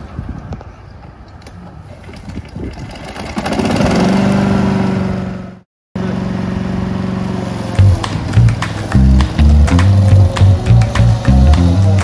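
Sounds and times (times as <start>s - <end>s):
mower engine running: 3.3s - 12.0s.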